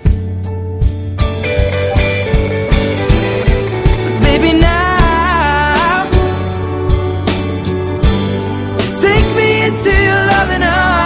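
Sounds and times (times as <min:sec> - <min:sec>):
pop song with drum beat: 0:00.0 - 0:11.0
person singing: 0:03.6 - 0:06.9, 0:08.9 - 0:11.0.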